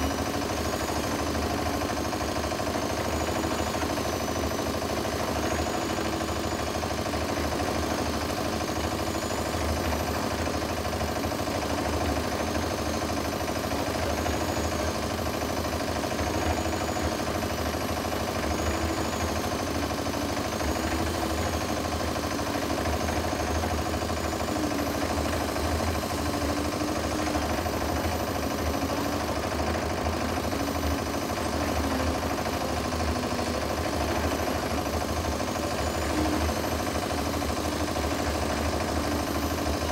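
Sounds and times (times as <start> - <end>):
diesel engine running: 15.3 - 39.9.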